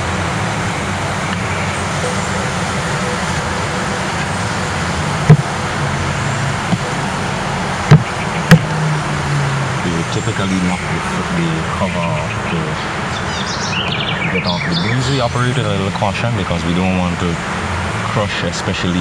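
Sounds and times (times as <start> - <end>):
bees buzzing: 1.3 - 10.5
knocks on wooden hive cover: 7.9 - 8.7.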